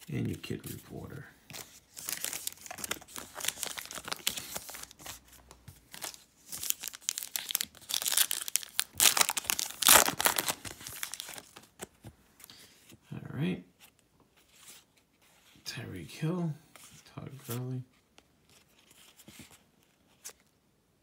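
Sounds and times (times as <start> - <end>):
foil wrapper crinkling and tearing: 1.9 - 5.2, 5.9 - 11.9.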